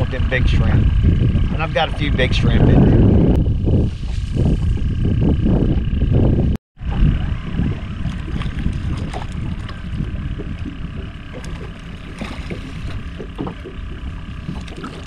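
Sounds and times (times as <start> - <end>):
waves lapping against hull: 0.0 - 6.0, 6.8 - 15.0
wind on microphone: 0.0 - 15.0.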